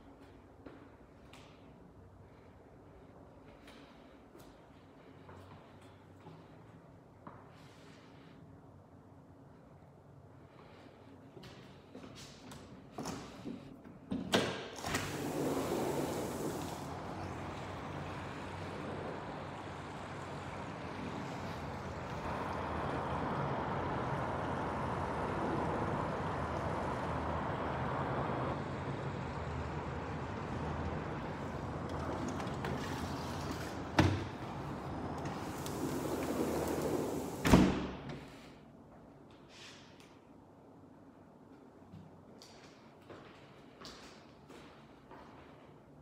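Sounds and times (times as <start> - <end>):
door pushed shut with thud: 37.4 - 38.1.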